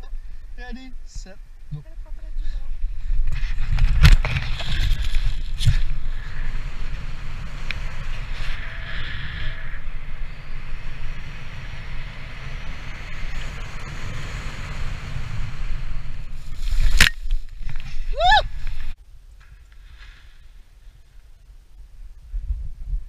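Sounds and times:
wind rushing over microphone: 2.0 - 19.0, 20.7 - 23.0
person whooping shout: 18.1 - 18.5.

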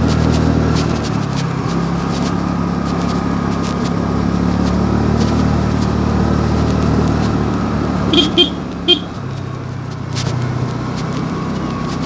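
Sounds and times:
scooter engine running: 0.1 - 10.1.

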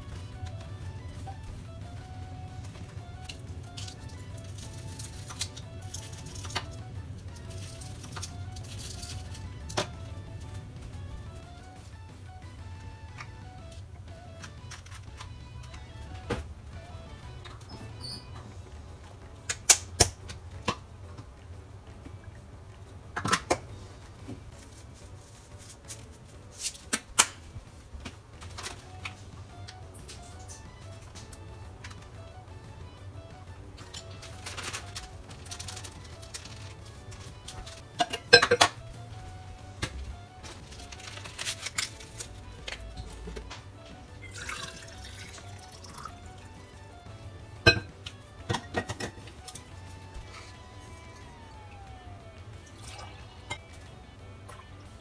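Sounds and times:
light background music: 0.0 - 55.0
hot water pouring into bottle: 44.3 - 46.4.

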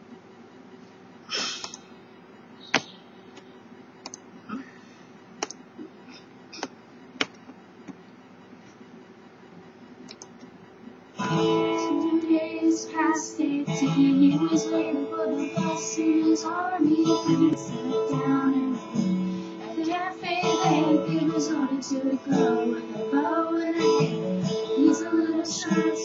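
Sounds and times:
recorded guitar music: 11.2 - 26.0.

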